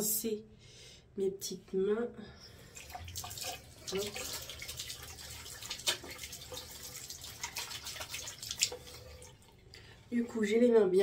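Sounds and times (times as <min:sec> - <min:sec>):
water splashing on hands: 0:02.8 - 0:09.5.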